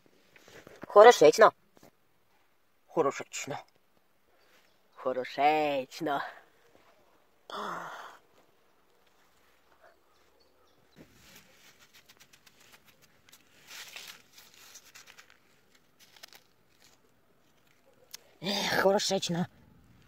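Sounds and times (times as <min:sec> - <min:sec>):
hand crunching damp sand: 0:11.0 - 0:17.8.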